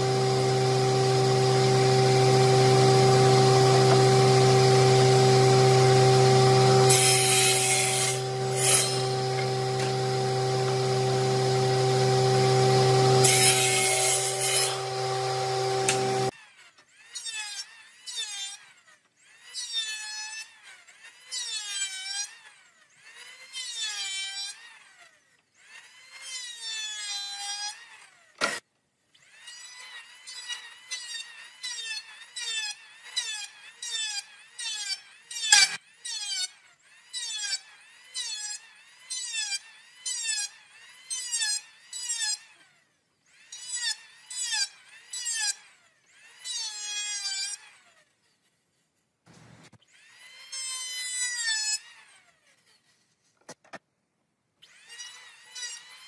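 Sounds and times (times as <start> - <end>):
electric planer shaving wood: 0.0 - 16.4.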